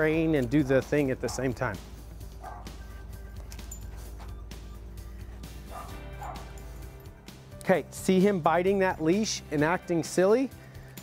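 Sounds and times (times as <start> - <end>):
background music: 0.0 - 11.0
dog barking: 1.2 - 1.6, 2.4 - 2.8, 5.7 - 6.6.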